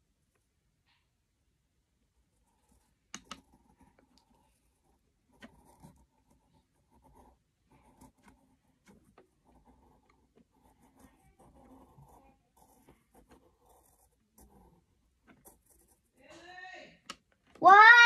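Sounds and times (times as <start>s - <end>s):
pencil scratching on paper: 2.4s - 16.2s.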